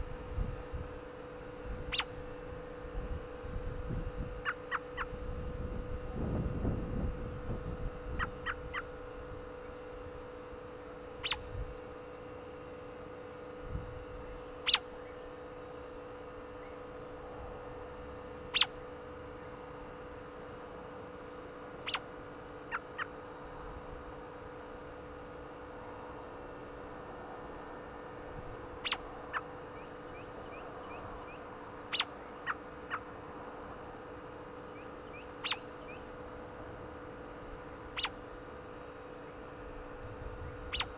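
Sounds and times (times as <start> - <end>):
bird chirping: 1.9 - 2.1, 11.2 - 11.5, 14.6 - 15.4, 18.5 - 18.8, 21.8 - 22.0, 28.8 - 33.0, 34.7 - 36.1, 37.8 - 38.2, 40.5 - 40.9.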